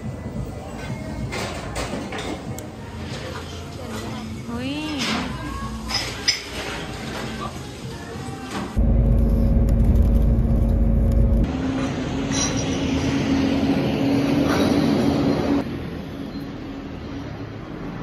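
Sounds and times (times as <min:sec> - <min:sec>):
vehicle engine running: 0:08.8 - 0:11.5.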